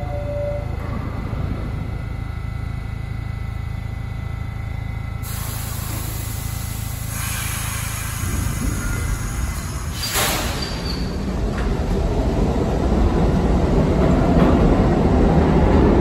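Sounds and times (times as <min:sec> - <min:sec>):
subway train rumble and hum: 0:00.0 - 0:16.0
air hiss: 0:05.2 - 0:10.9.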